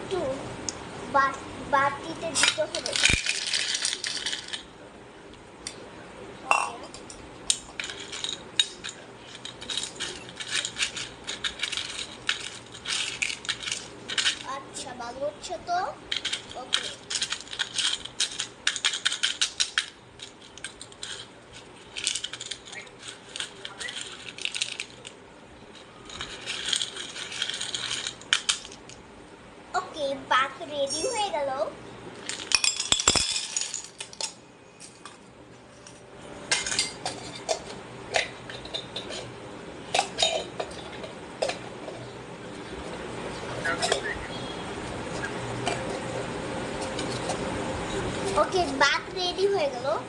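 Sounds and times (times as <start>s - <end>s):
toy metal pots clinking: 2.3s - 4.6s, 32.3s - 34.4s.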